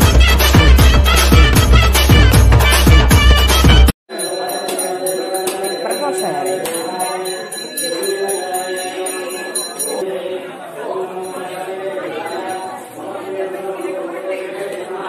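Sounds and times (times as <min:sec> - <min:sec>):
loud title music: 0:00.0 - 0:03.9
temple bell ringing rapidly: 0:04.1 - 0:13.2
murmur of a crowd: 0:04.1 - 0:15.0.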